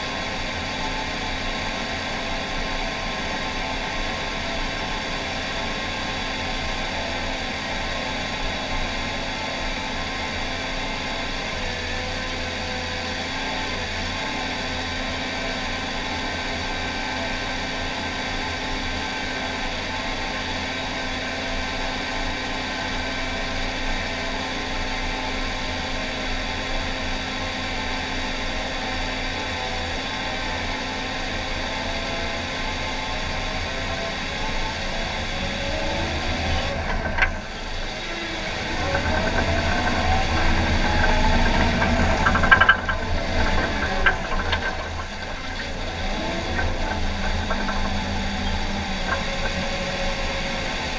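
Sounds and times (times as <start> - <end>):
diesel engine under load: 0.0 - 50.9.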